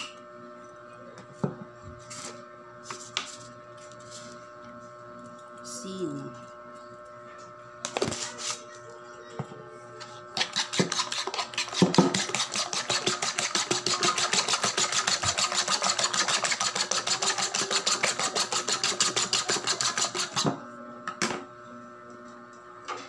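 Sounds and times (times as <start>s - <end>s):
fork beating eggs in bowl: 10.3s - 20.6s.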